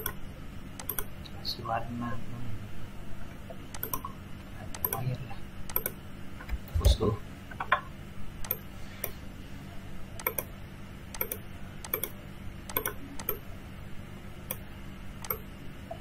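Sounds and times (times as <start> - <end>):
computer mouse clicking: 0.0 - 0.2, 0.8 - 1.1, 3.7 - 4.1, 4.7 - 6.0, 8.4 - 9.2, 10.2 - 10.5, 11.1 - 13.4, 15.2 - 15.5
steady low hum: 0.0 - 16.0.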